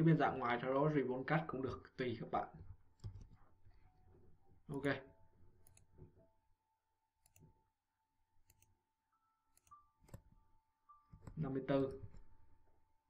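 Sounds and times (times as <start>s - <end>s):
faint mouse clicks: 11.2s - 12.3s.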